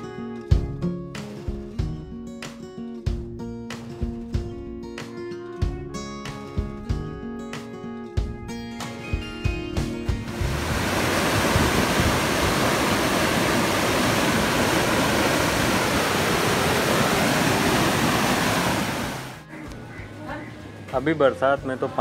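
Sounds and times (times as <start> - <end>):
water rushing over a weir: 10.3 - 19.4.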